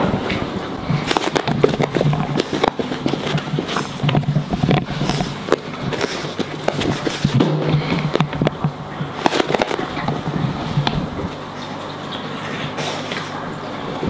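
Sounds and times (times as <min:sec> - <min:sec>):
puppy playing with ball: 0:00.8 - 0:13.3.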